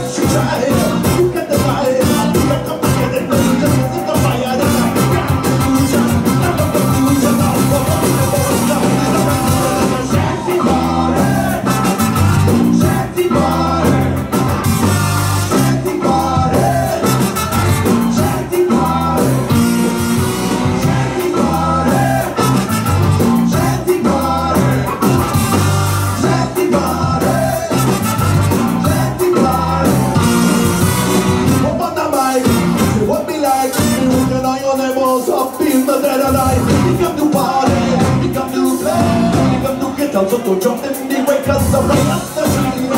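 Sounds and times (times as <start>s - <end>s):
ska band playing live: 0.0s - 42.9s.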